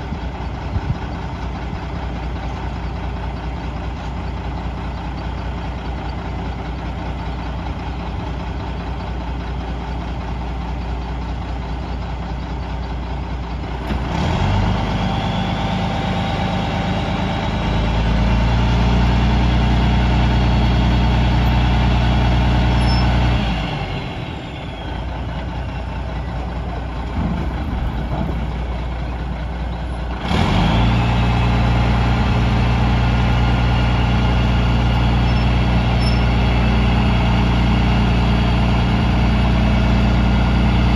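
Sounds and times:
truck diesel engine idling: 0.0 - 40.9.

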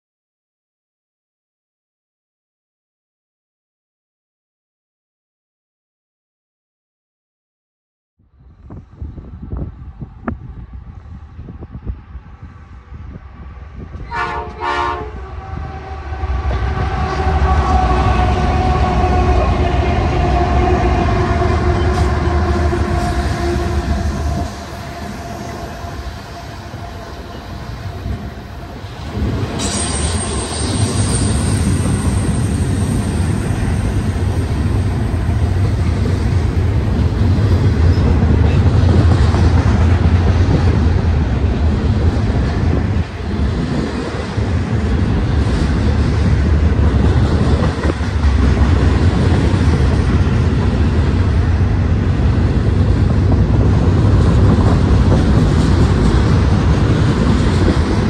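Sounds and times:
locomotive engines droning: 8.6 - 58.0
train horn blast: 14.0 - 28.8.

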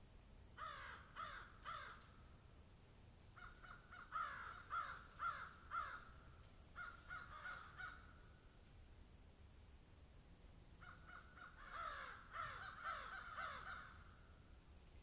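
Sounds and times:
crows cawing: 0.6 - 2.1, 3.4 - 6.2, 6.8 - 8.2, 10.8 - 14.1.

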